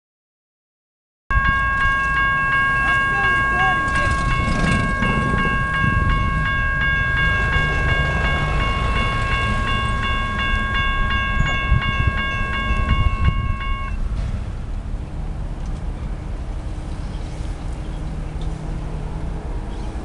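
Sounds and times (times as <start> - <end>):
railroad crossing bell ringing: 1.3 - 14.7
low rumble: 3.7 - 19.8.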